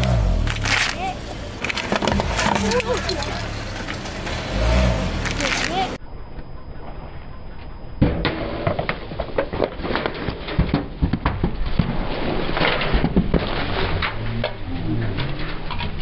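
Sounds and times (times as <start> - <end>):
cans crunching under a tyre: 0.0 - 6.0.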